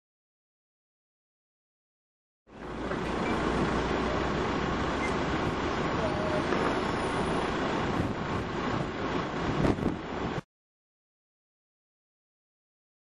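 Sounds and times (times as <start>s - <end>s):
even rushing noise: 2.5s - 10.4s.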